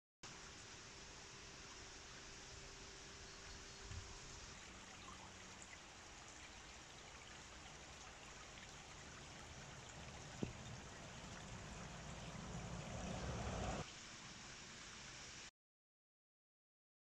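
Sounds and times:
stream trickling over stones: 0:00.3 - 0:15.4
low rumble: 0:10.1 - 0:13.8.

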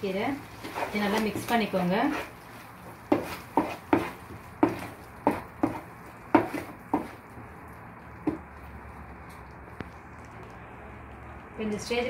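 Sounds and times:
wooden spatula scraping pan: 0:00.4 - 0:07.3.

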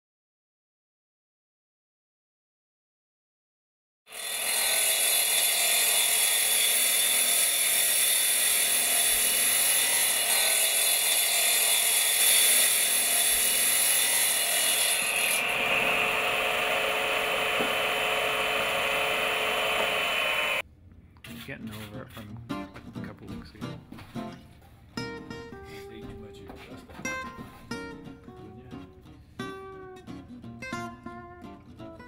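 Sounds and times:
masonry saw cutting brick: 0:04.1 - 0:20.6.

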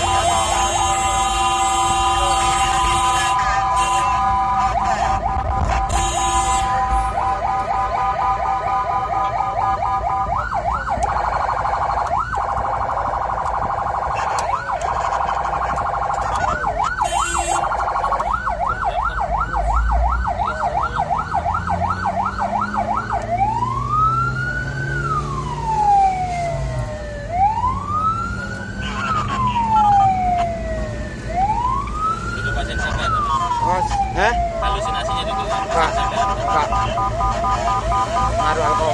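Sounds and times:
ambulance siren: 0:00.0 - 0:38.9.

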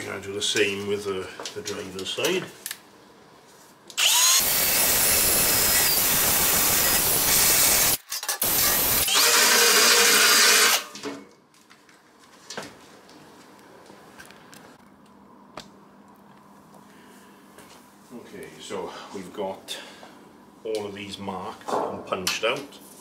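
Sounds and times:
drill grinding into metal: 0:04.0 - 0:11.0.

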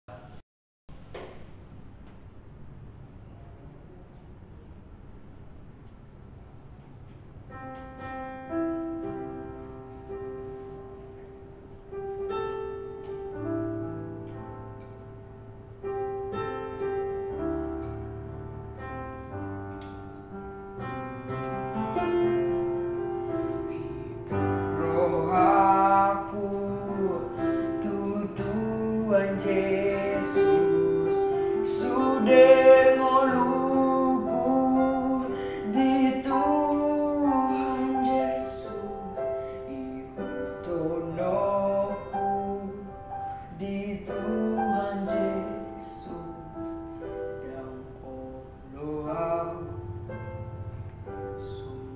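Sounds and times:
piano accompaniment: 0:05.6 - 0:51.9
boy singing with vibrato: 0:23.7 - 0:46.8.

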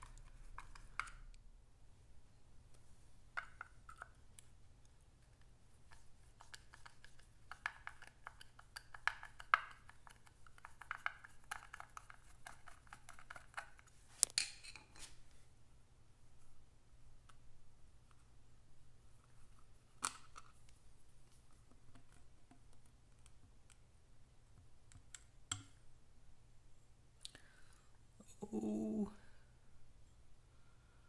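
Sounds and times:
screwdriver metal clicks and scrapes: 0:06.4 - 0:15.1.

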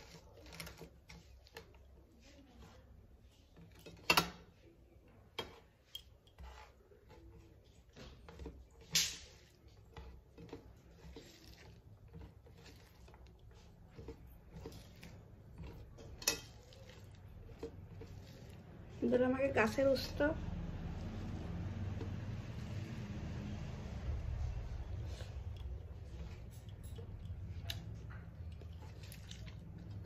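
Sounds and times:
fingers squishing rice: 0:00.0 - 0:04.2, 0:05.2 - 0:30.0.

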